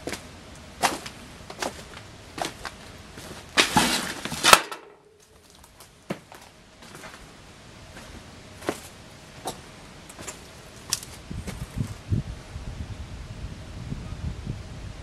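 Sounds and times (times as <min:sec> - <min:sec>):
footsteps crunching on debris: 0:00.0 - 0:07.3, 0:07.9 - 0:12.0
sharp crack: 0:03.6 - 0:05.1.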